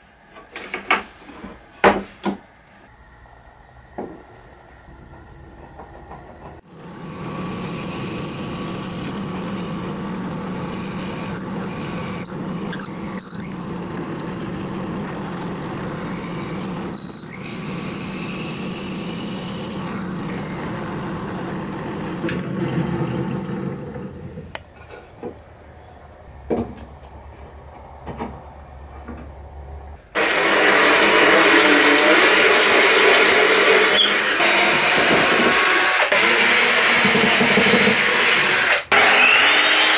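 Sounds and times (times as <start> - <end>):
cordless drill drilling into wood: 30.2 - 39.9
drill press boring into wood: 30.2 - 39.9.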